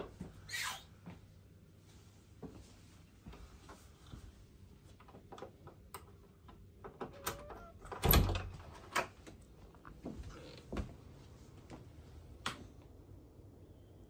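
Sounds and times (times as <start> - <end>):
brief squeak: 0.5 - 0.9.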